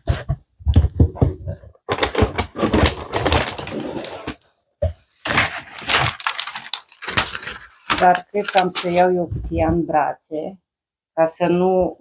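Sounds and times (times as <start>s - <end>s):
cardboard box rustling and scraping: 0.0s - 9.6s.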